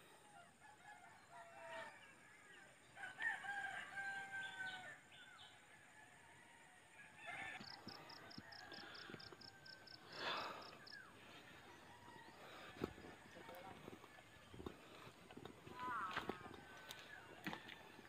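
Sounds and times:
distant rooster crowing: 0.4s - 18.0s.

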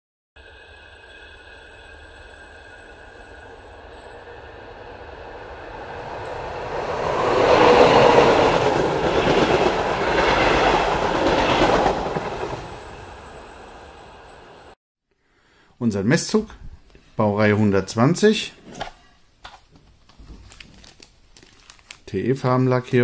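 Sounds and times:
model train running on track: 0.4s - 14.8s.

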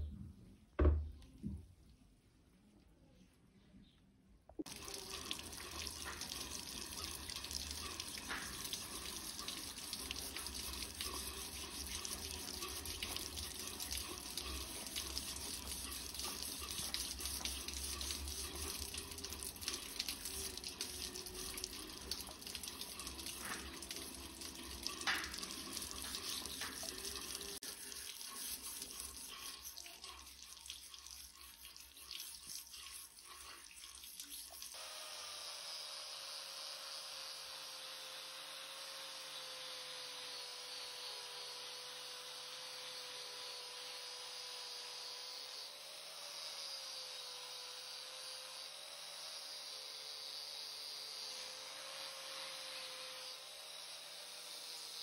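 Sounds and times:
hose water splashing on metal: 4.6s - 34.8s.

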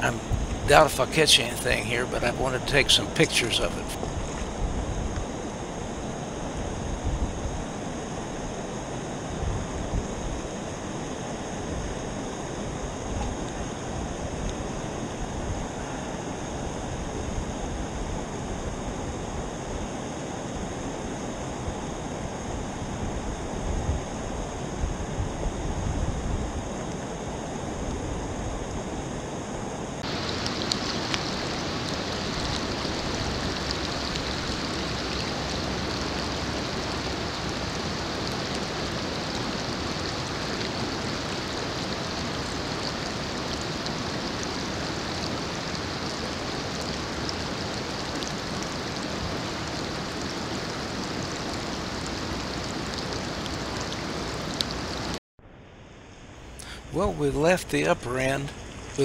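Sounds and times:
water rushing over rocks: 0.0s - 4.4s, 30.0s - 55.2s
low rumbles: 0.0s - 5.2s.

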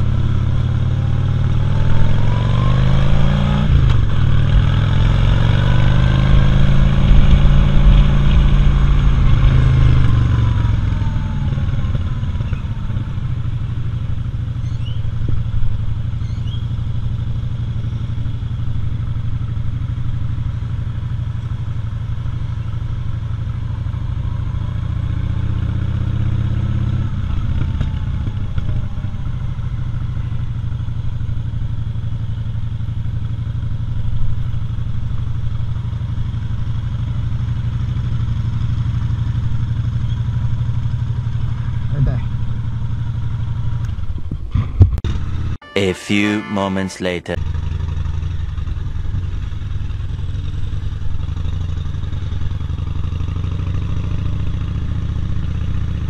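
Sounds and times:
motorcycle engine rumbling: 0.0s - 24.7s, 47.4s - 56.0s.

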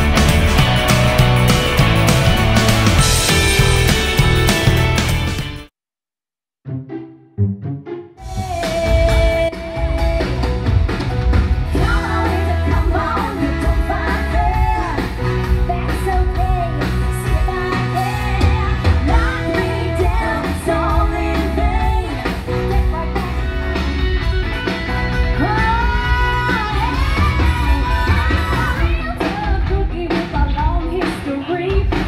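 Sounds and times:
electric guitars: 0.0s - 5.6s, 8.2s - 29.6s
live rock-pop band: 0.0s - 5.6s, 8.3s - 32.0s
heavy drum beat: 0.0s - 5.7s
person singing: 8.2s - 10.7s, 11.7s - 23.5s.

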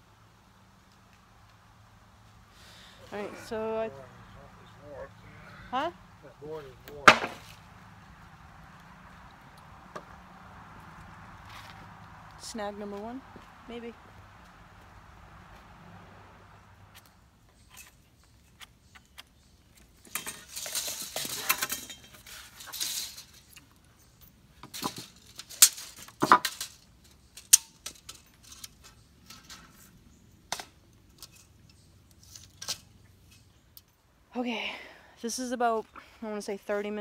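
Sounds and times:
scraping and rustling: 19.8s - 30.1s.

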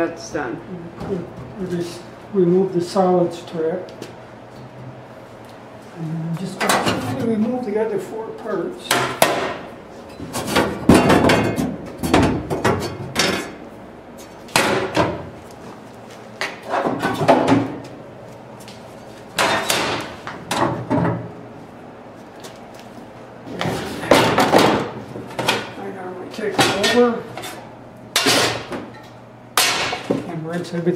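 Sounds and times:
metal trays clanking: 26.5s - 27.2s.

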